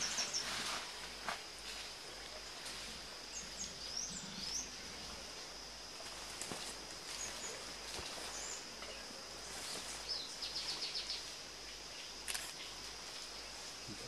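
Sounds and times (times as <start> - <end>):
high insect hum: 0.0 - 14.0.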